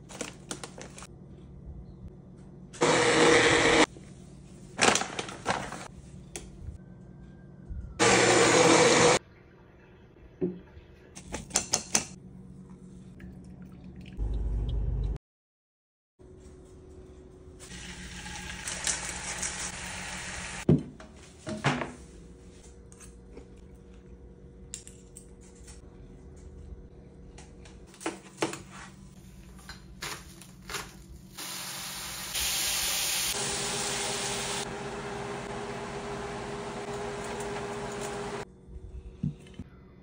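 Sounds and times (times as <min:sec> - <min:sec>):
chicken sizzling in a frying pan: 0:17.7 - 0:20.7, 0:31.3 - 0:34.6.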